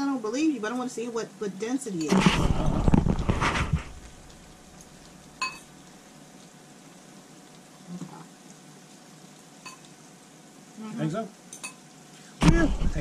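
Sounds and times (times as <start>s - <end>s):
pot simmering with bubbling hiss: 0.0s - 13.0s.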